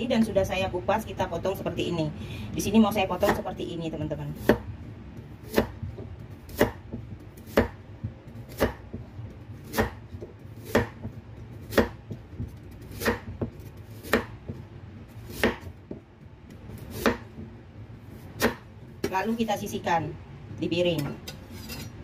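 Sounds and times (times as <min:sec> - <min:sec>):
knife chopping carrot on board: 0:04.4 - 0:04.7, 0:05.4 - 0:14.6, 0:15.2 - 0:17.5, 0:18.3 - 0:19.2.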